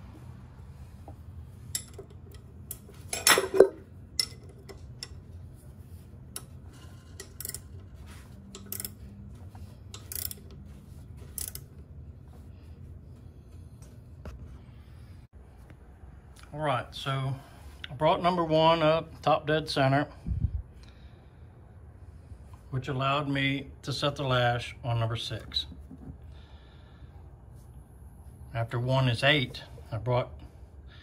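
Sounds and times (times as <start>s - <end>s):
low steady hum: 0.0s - 31.0s
wrench clinking on metal: 1.7s - 5.2s, 6.4s - 9.1s, 9.9s - 10.6s.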